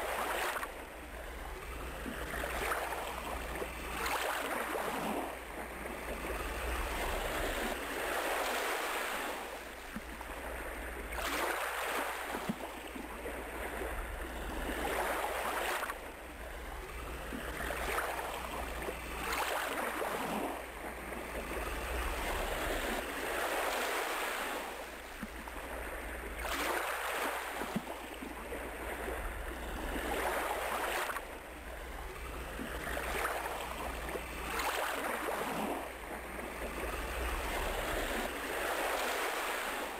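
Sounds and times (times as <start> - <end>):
waves breaking: 0.0 - 39.9.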